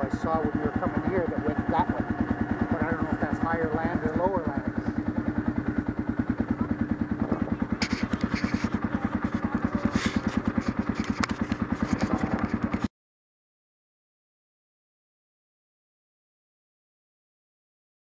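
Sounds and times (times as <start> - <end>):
engine idling: 0.0 - 12.9
camera handling knocks and rustles: 7.8 - 12.9.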